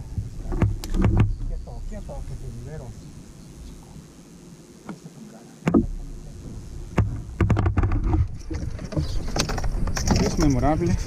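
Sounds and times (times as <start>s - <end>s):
knocks on wooden canoe: 0.5s - 1.4s, 6.9s - 8.3s
low rumble: 5.7s - 7.4s.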